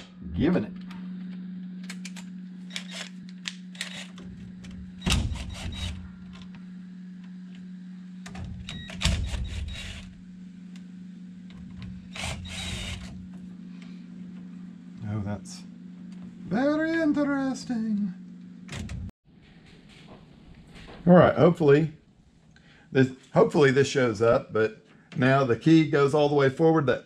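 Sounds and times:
steady low hum: 0.0s - 27.0s
cordless drill bursts: 5.3s - 6.0s, 12.1s - 13.2s.

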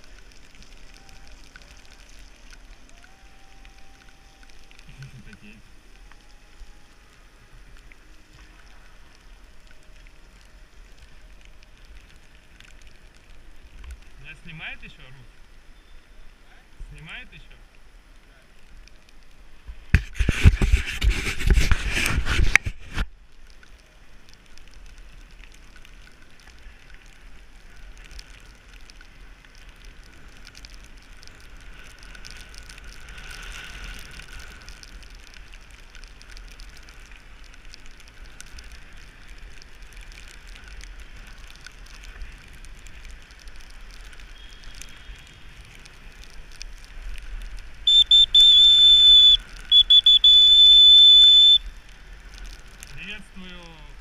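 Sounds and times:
bicycle tyres hissing on wet road: 0.0s - 54.0s
rain: 0.0s - 54.0s
rushing crackling microphone noise: 0.0s - 54.0s
wind on microphone: 19.8s - 23.1s.

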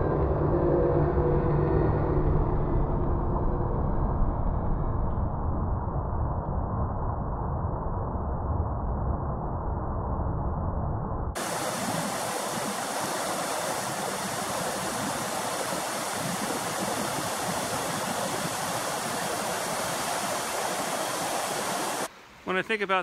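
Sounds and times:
water rushing over rocks: 11.4s - 22.1s.

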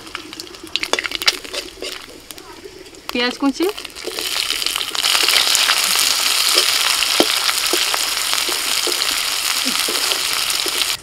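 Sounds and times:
onions sizzling in oil: 0.0s - 11.0s
metal spatula scraping pan: 0.9s - 2.1s.

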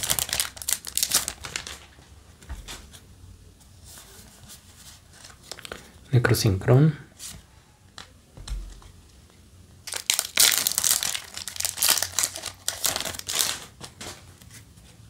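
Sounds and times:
foil wrapper crinkling and tearing: 0.0s - 2.0s, 5.2s - 5.8s, 9.8s - 14.1s.

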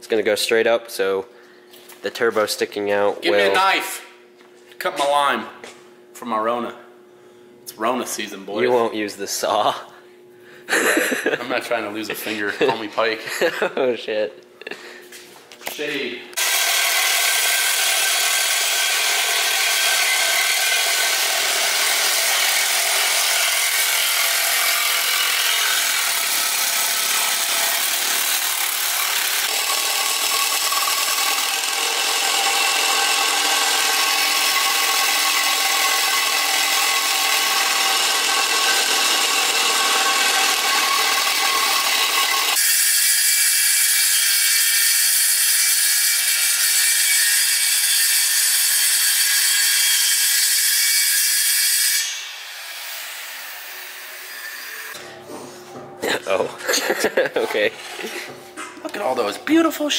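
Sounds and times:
drill grinding aluminium: 16.4s - 55.0s
circular saw cutting aluminium: 16.4s - 55.1s.

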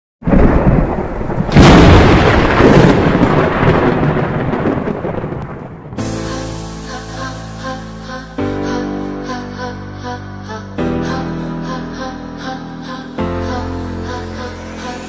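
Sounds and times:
thunder-like rumble and crash: 0.2s - 6.5s.

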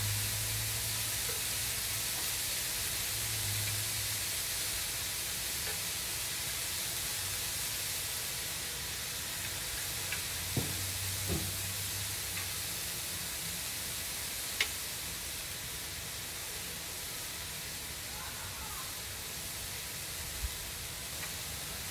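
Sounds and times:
meat sizzling on a griddle: 0.0s - 21.9s.

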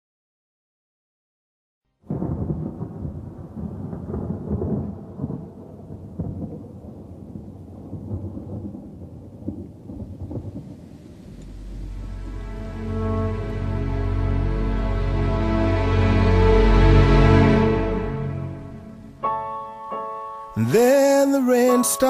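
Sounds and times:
rain: 2.0s - 19.2s
rumbling thunder: 2.1s - 13.8s.

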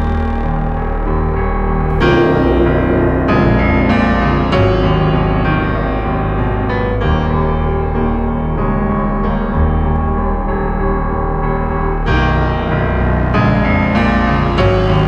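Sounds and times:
piano chords: 1.9s - 9.0s.

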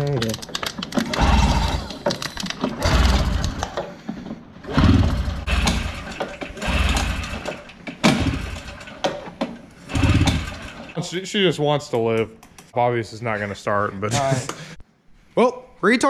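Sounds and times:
recoil starter pulls: 4.6s - 11.0s
engine turning over rumble: 4.8s - 8.8s.

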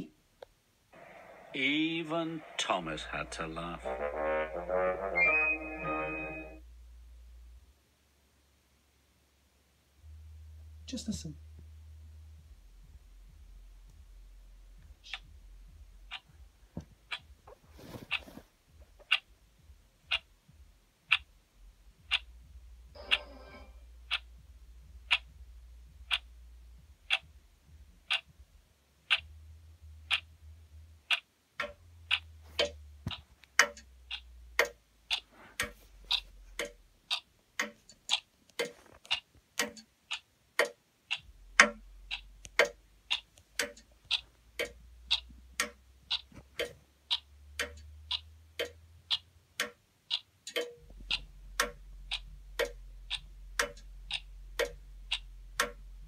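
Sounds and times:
clock ticking: 0.0s - 4.2s, 12.4s - 56.0s.

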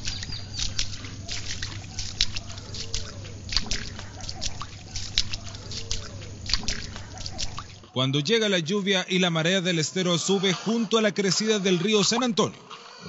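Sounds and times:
floodwater splashing: 0.0s - 8.0s
low steady hum: 0.0s - 12.6s.

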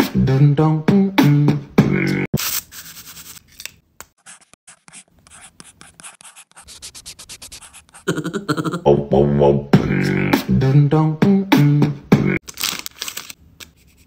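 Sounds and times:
beatboxing: 0.0s - 2.3s, 7.9s - 12.4s
pen scratching across teeth: 4.2s - 8.1s.

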